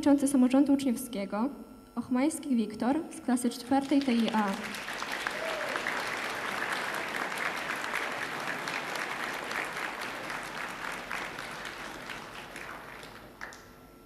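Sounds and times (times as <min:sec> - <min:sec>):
audience applauding: 0:03.7 - 0:13.7.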